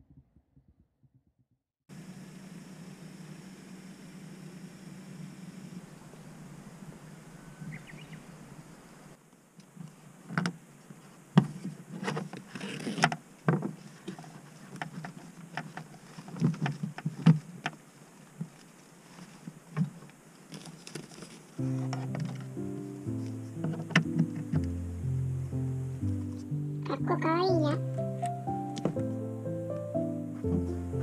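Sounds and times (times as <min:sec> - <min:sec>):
faint hum: 0:01.9 - 0:11.8
short rustle: 0:09.7 - 0:24.4
clicks and knocks of cable handling: 0:11.4 - 0:17.8, 0:19.4 - 0:22.5.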